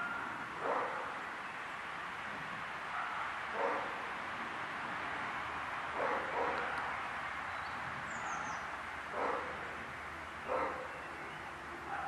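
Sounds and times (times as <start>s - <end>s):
dogs barking: 0.0s - 1.2s, 2.9s - 4.0s, 6.0s - 6.8s, 8.2s - 9.6s, 10.4s - 11.0s
outdoor background noise: 0.0s - 12.0s.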